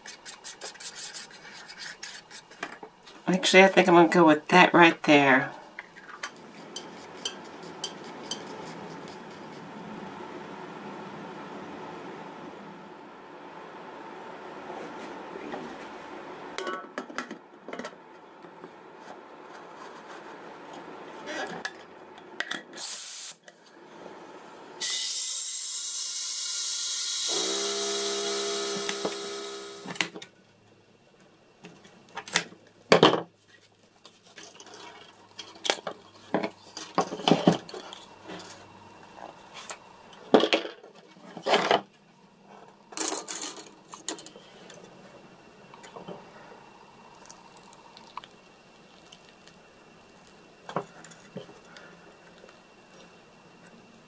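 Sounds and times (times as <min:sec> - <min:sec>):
compressed air hissing: 0:22.8 - 0:23.4
steady hum: 0:27.3 - 0:31.6, 0:35.0 - 0:54.0.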